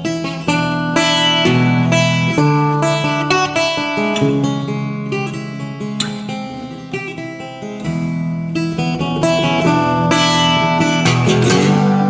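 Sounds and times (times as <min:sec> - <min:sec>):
acoustic guitar music: 0:00.0 - 0:12.0.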